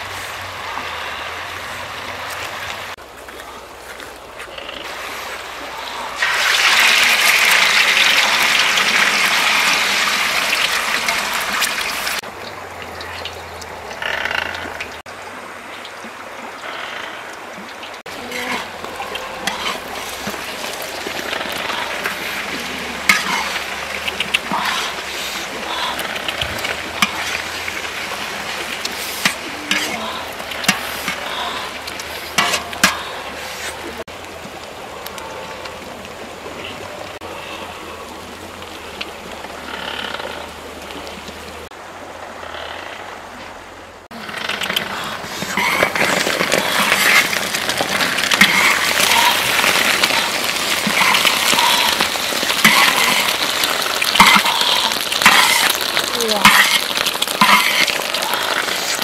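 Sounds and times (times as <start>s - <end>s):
eggs sizzling in oil: 4.6s - 12.3s, 18.0s - 34.2s, 44.1s - 59.0s
metal spatula scraping pan: 19.4s - 25.4s, 27.0s - 31.3s, 32.2s - 33.8s, 44.6s - 59.0s.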